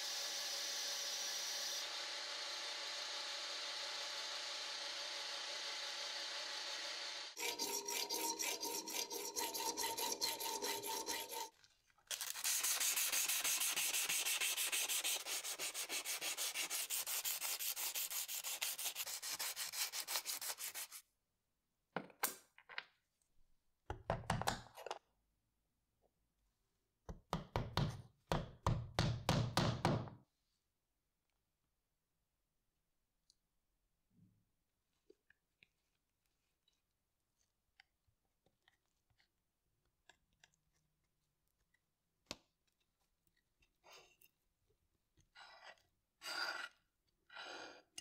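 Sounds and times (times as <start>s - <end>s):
metal lathe cutting: 7.4s - 11.4s
sandpaper rubbing: 7.4s - 11.5s, 12.1s - 21.0s.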